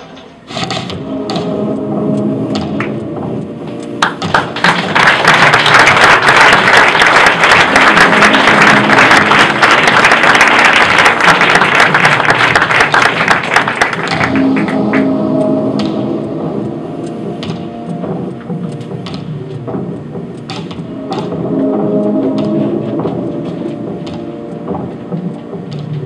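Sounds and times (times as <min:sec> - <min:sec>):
music playing: 0:00.0 - 0:26.0
audience applauding: 0:04.0 - 0:15.2.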